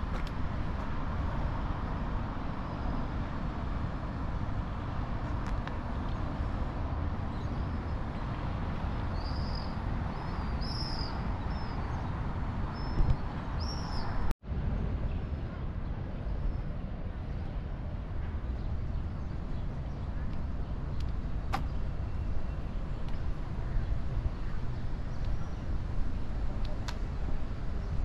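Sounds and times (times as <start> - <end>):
distant road traffic rumble: 0.0 - 28.0.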